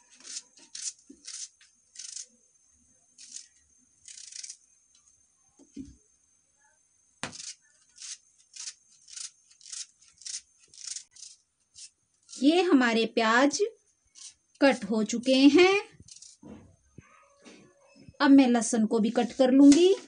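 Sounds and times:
knife slicing onion crunches: 7.2s - 12.6s.

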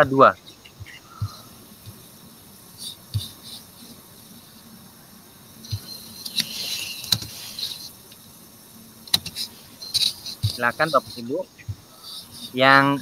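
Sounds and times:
faint chirping insects: 0.0s - 13.0s.

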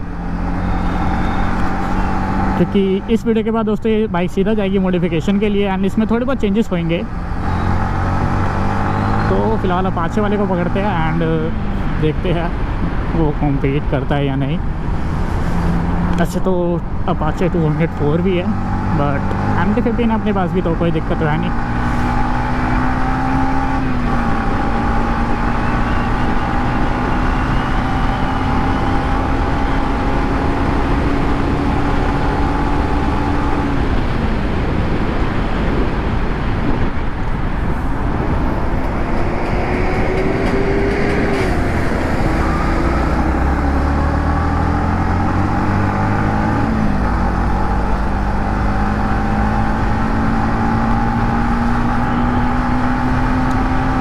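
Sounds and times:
motorcycle engine revving: 0.0s - 3.1s, 6.8s - 11.8s, 17.6s - 34.8s, 36.6s - 54.0s
road and wind noise: 0.0s - 54.0s.

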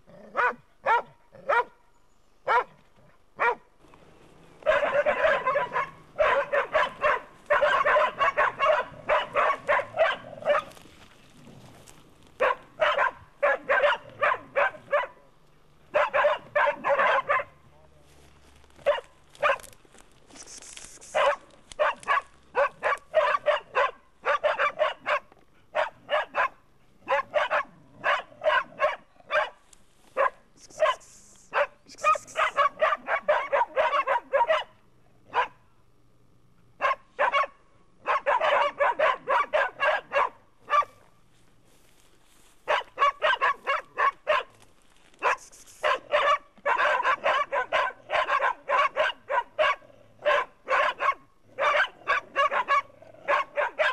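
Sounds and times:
dog barking: 0.3s - 1.8s, 2.4s - 2.8s, 3.4s - 3.7s, 4.6s - 10.8s, 12.4s - 15.3s, 15.9s - 17.6s, 18.8s - 19.8s, 21.0s - 29.6s, 30.2s - 35.6s, 36.8s - 41.0s, 42.6s - 44.6s, 45.2s - 53.9s.

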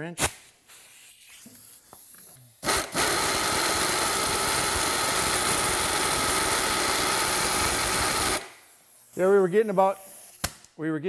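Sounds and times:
pneumatic air wrench running: 0.7s - 9.1s.

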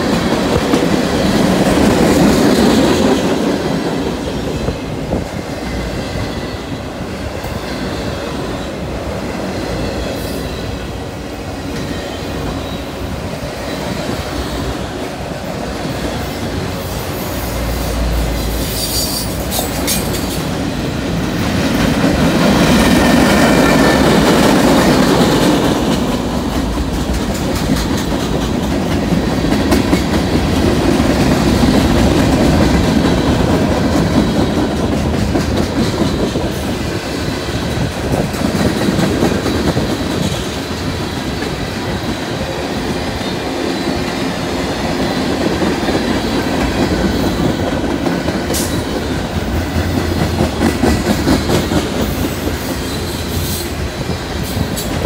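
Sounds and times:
freight train cars rolling past: 0.0s - 55.0s
high wheel squeal: 17.0s - 20.5s.

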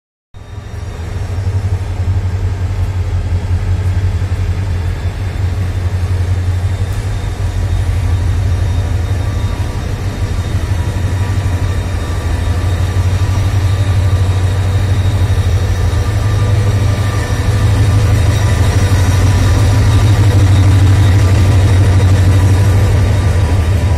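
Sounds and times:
locomotive engine droning: 0.4s - 23.9s.

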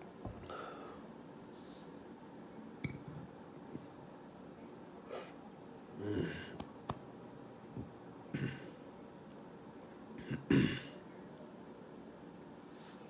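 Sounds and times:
man stifling burps: 8.3s - 8.7s, 10.2s - 10.9s.

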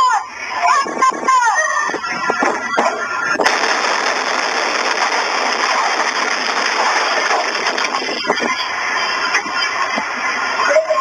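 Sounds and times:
loud rushing noise: 3.4s - 9.0s.

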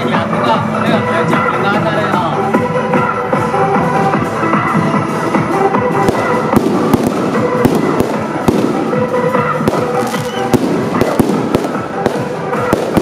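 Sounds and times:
loud music with held notes: 0.0s - 13.0s
firecrackers popping: 3.4s - 13.0s.

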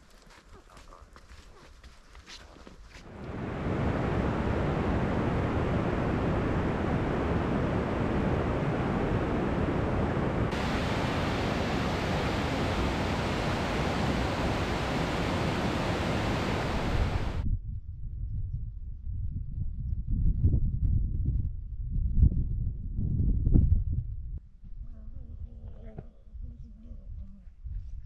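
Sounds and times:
river rapids rushing over rocks: 10.2s - 17.4s.

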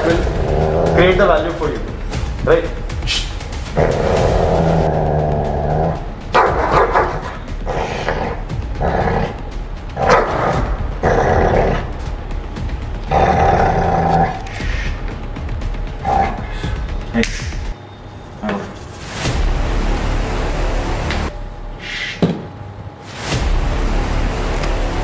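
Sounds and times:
dog growling: 0.0s - 1.2s, 3.7s - 12.0s, 13.0s - 14.7s, 16.0s - 16.6s.

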